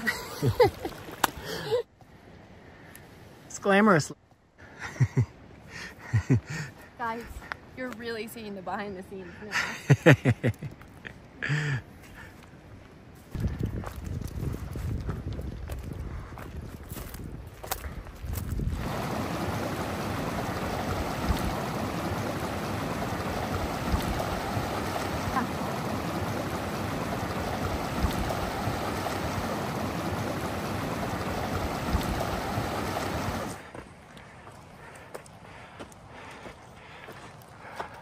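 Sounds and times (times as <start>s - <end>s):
running water rushing: 0.0s - 1.8s, 18.7s - 33.7s.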